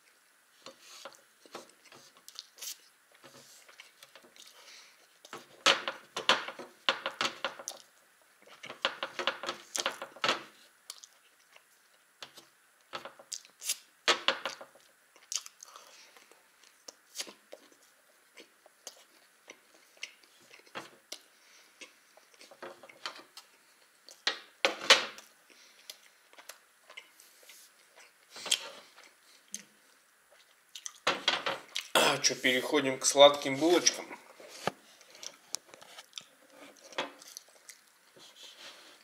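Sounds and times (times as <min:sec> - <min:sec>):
chewing and mouth sounds: 0:01.7 - 0:02.9, 0:10.9 - 0:11.7, 0:14.8 - 0:24.2, 0:30.3 - 0:31.0, 0:31.7 - 0:31.9, 0:35.0 - 0:38.1.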